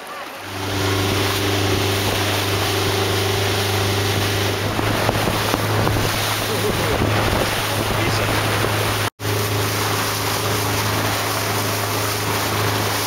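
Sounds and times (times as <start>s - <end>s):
boat engine droning: 0.0s - 13.0s
water rushing along hull: 0.0s - 13.0s
wind on microphone: 0.5s - 9.1s.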